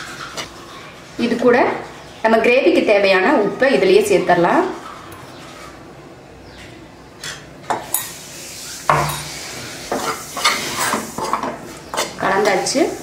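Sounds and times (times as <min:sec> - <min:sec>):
metal spoon scraping pan: 0:07.8 - 0:13.0.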